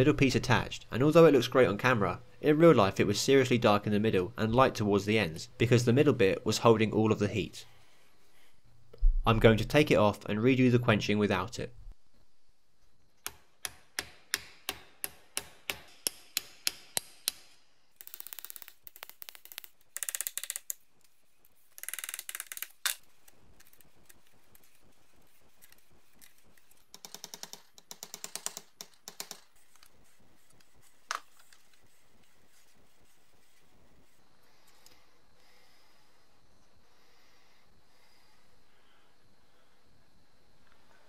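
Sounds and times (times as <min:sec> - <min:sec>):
rattling bursts of fast clicks: 0:26.7 - 0:29.5.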